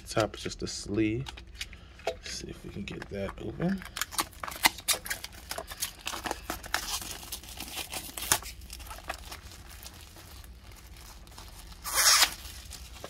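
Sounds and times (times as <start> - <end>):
packaging scrapes and crinkles: 3.9 - 13.0.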